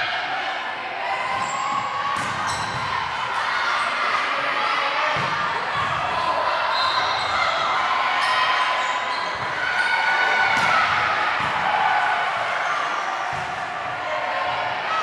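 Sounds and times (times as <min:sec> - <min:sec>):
volleyball struck by hands: 0:02.1 - 0:02.9, 0:10.5 - 0:11.7.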